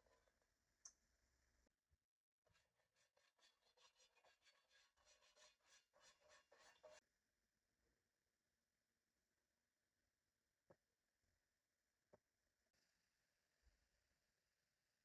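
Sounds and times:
brush rubbing on frying pan: 2.6 - 7.0.

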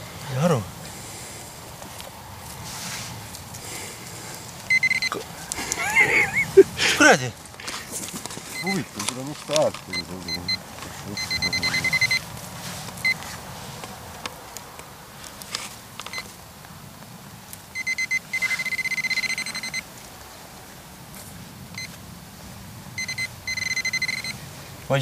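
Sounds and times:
scraping of soil: 1.8 - 4.5
metal detector beeping: 4.7 - 6.5, 8.5 - 12.3, 13.0 - 13.2, 16.1 - 16.3, 17.7 - 19.9, 21.8 - 22.0, 23.0 - 24.4.

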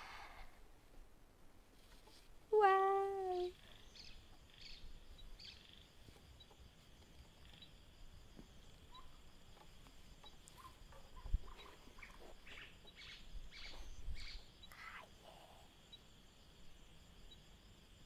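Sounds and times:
faint insect drone: 0.0 - 18.0
birds chirping: 2.9 - 16.0.

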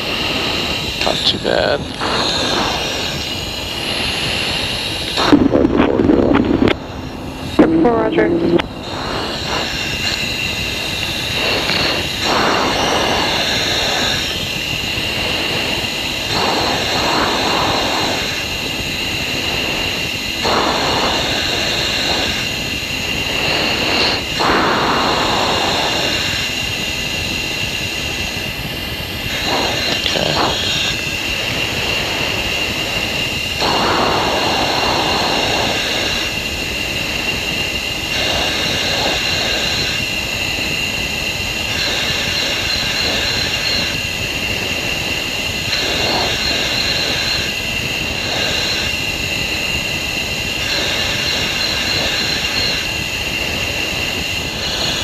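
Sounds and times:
jet engine and airflow hiss: 0.0 - 55.0.

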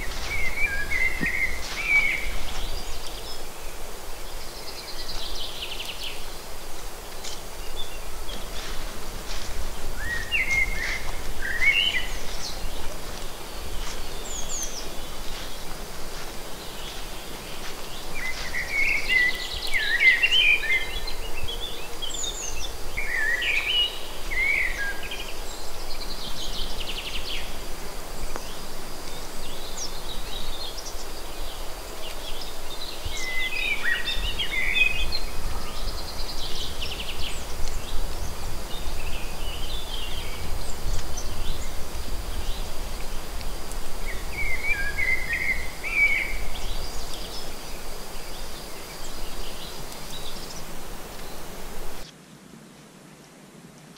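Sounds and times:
songbirds chirping: 0.0 - 52.4
outdoor background hiss: 0.0 - 53.9.

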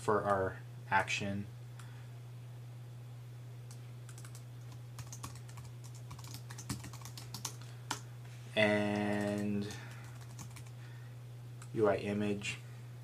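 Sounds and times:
computer keyboard typing: 4.1 - 8.0, 8.9 - 10.8.

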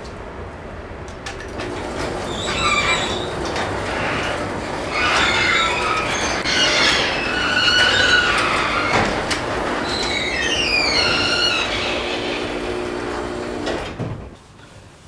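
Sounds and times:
garage door rolling closed: 1.2 - 14.4
rollers squealing in tracks: 1.8 - 13.2.

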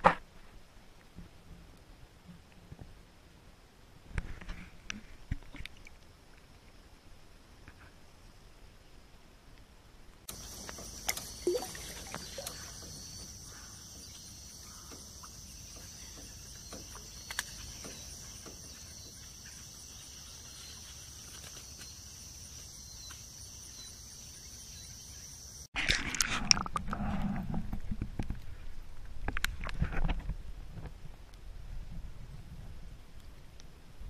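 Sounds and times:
insects buzzing: 10.3 - 25.7
faint clicks: 16.5 - 18.6.

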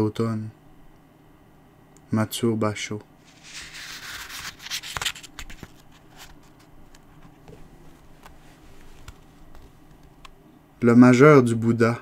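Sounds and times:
faint rustling: 3.2 - 10.3.

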